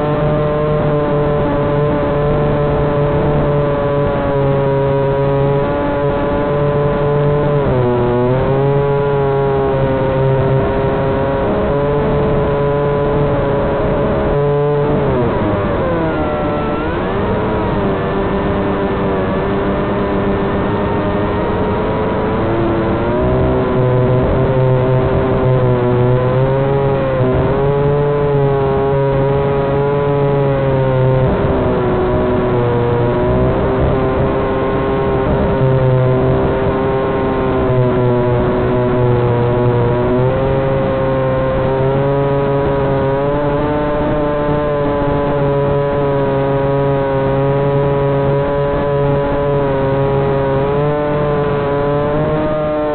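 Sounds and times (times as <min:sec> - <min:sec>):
drone motors whining: 0:00.0 - 0:52.9.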